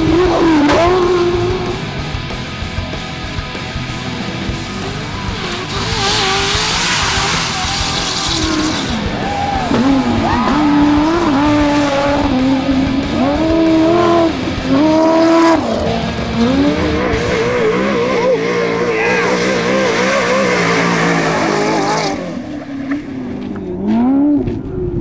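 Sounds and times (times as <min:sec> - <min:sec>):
truck engine revving hard: 0:00.0 - 0:24.6
dirt spraying: 0:05.6 - 0:09.0.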